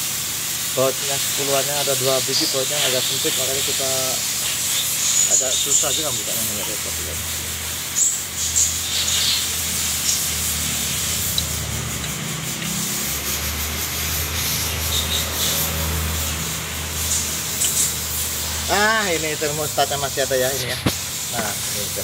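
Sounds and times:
steady low hum: 0.7s - 22.0s
wrench scraping against metal: 8.0s - 19.1s.

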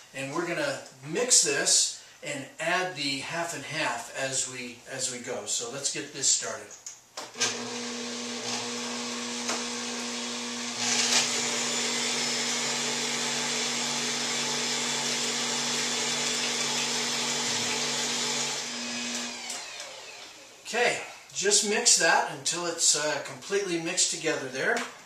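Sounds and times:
stand mixer motor running: 7.4s - 20.4s.

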